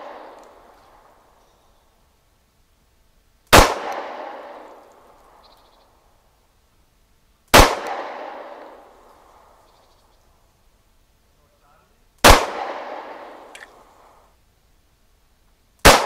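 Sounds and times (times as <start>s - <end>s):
pistol shots with echo: 3.5s - 4.8s, 7.5s - 8.9s, 12.2s - 13.7s.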